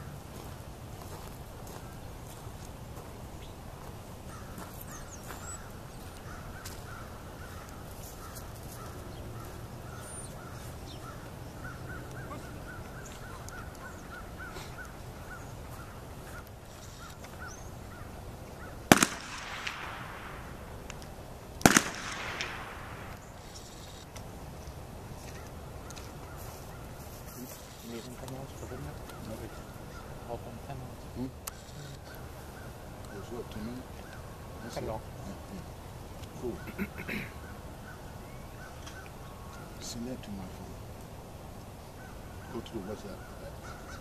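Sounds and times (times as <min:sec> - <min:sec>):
gunshots with echo: 0:18.9 - 0:20.7, 0:21.6 - 0:23.2.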